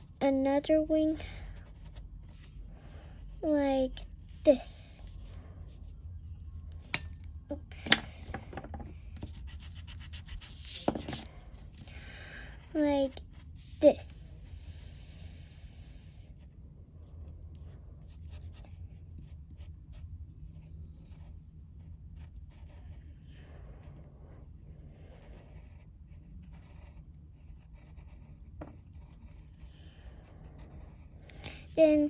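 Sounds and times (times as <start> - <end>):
pencil scratching on paper: 1.3 - 7.2, 7.8 - 11.9, 18.0 - 23.0, 23.8 - 32.0.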